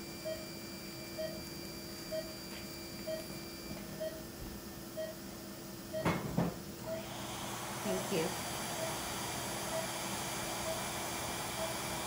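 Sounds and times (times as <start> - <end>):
equipment beeping: 0.2 - 4.3, 5.0 - 5.2, 8.8 - 9.0, 9.6 - 10.0, 10.6 - 12.0.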